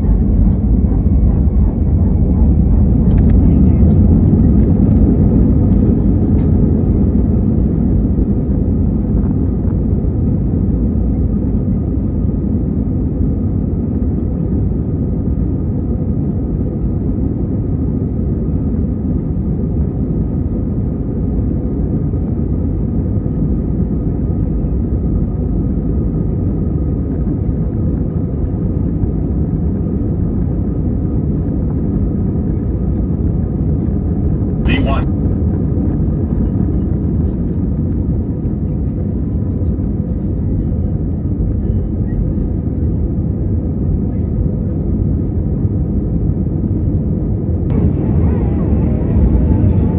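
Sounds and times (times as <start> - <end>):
jet engines at takeoff: 0.0 - 49.9.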